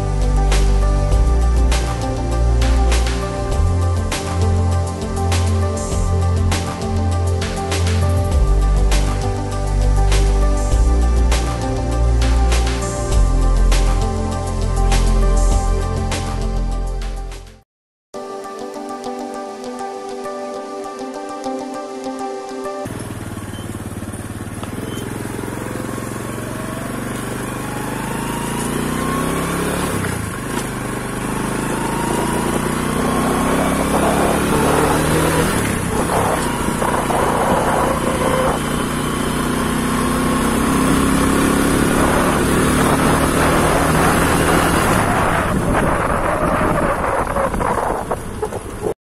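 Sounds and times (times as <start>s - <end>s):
motorcycle engine revving: 22.8s - 49.0s.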